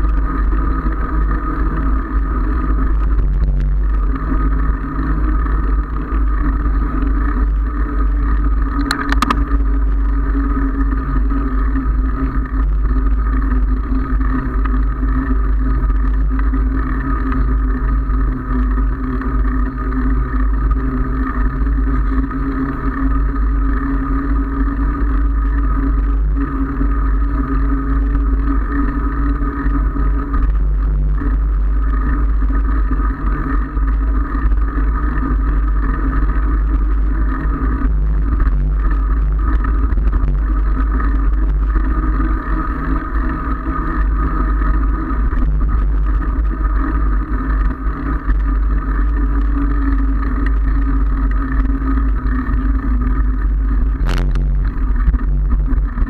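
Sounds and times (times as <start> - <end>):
steady hum: 0.0 - 56.0
wind rushing over microphone: 23.2 - 56.0.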